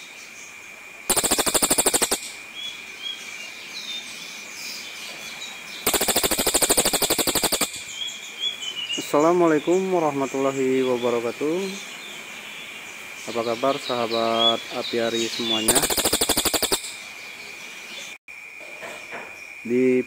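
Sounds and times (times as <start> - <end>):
faint chirps: 0.0 - 3.6, 4.5 - 18.2
bird harsh rattling calls: 1.1 - 2.4, 5.8 - 8.0, 15.2 - 17.1
steady high whine: 1.1 - 2.4, 5.9 - 7.9.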